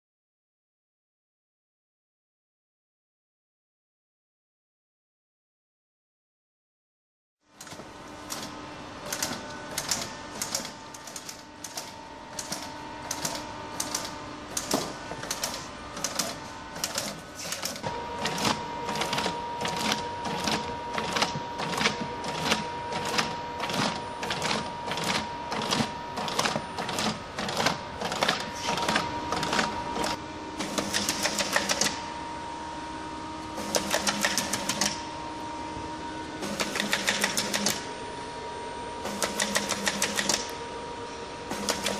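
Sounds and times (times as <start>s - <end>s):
machine hum: 7.4s - 41.9s
feeder machine clicking: 7.6s - 32.0s, 33.7s - 35.0s, 36.4s - 37.8s, 39.1s - 40.6s.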